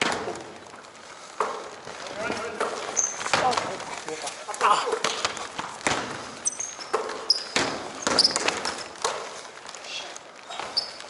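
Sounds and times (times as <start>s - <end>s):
sneaker squeaks: 2.8s - 3.7s, 5.1s - 8.9s, 10.5s - 11.0s
basketball bouncing on wooden floor: 5.0s - 9.2s.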